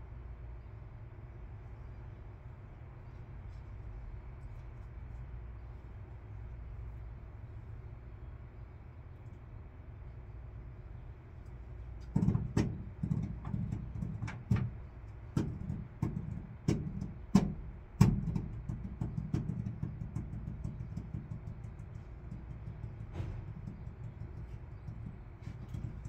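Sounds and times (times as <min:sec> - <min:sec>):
steady low rumble: 0:00.0 - 0:26.0
knocks and clicks on sheet metal: 0:12.0 - 0:26.0.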